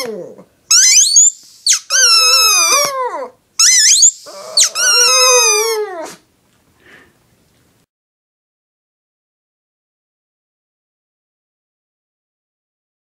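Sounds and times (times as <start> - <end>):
dog howling: 0.0 - 0.5, 2.0 - 6.2
rubber squeaky toy squeaking: 0.7 - 6.1.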